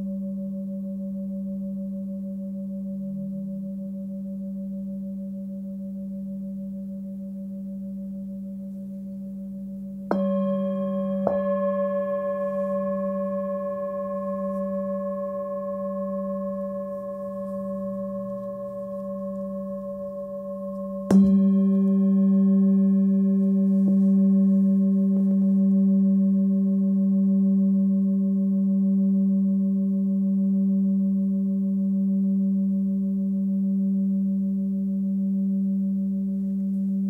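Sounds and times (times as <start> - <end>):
singing bowl ringing: 0.0 - 37.0
singing bowl strikes: 10.1 - 29.2.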